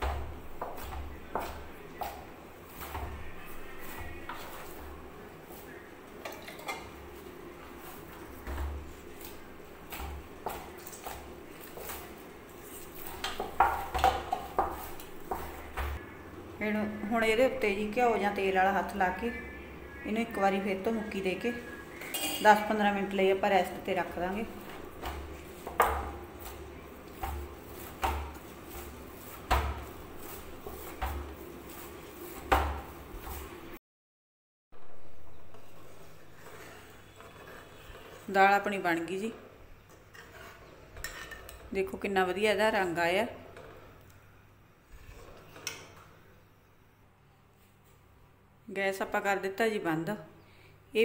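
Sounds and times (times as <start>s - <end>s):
hands kneading dough thuds: 0.0s - 4.8s, 24.1s - 33.8s.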